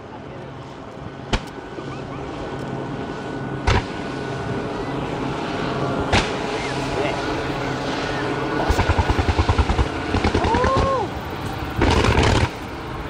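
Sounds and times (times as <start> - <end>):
fireworks rushing rumble: 5.8 - 13.0.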